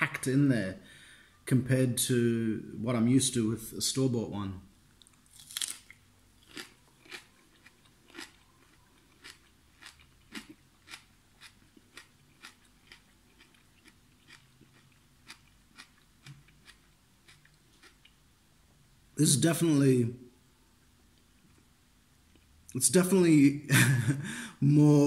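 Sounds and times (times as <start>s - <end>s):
person chewing crisp cucumber: 5.0s - 18.2s.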